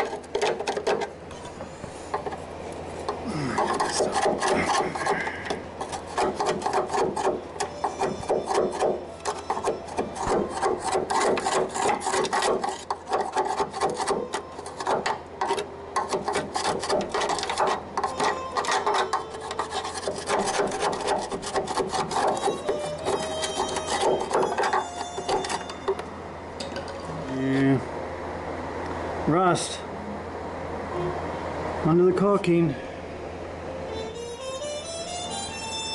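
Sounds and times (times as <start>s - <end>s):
metal scraper scraping paint off steel: 0.0s - 1.5s, 3.0s - 26.0s.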